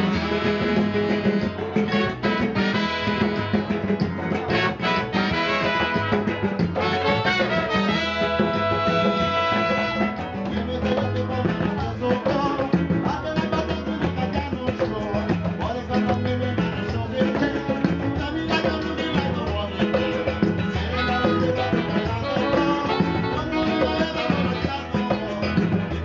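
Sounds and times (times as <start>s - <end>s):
saxophones: 0.0s - 3.8s, 4.5s - 10.4s
live calypso band playing: 0.0s - 26.0s
person singing into microphone: 6.8s - 26.0s.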